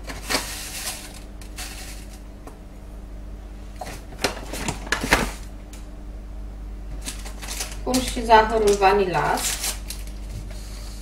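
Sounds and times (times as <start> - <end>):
paper bag crinkling: 7.0 - 10.9.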